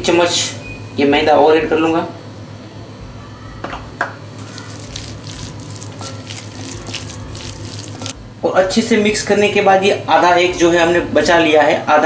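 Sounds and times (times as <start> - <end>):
hand squelching moist mixture: 4.4 - 8.2.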